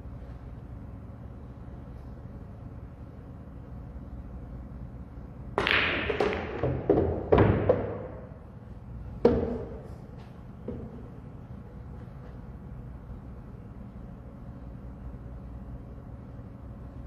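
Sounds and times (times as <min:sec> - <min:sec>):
balls thudding off cushions: 0:05.6 - 0:08.2
pool balls clacking: 0:05.6 - 0:08.4, 0:09.2 - 0:09.9.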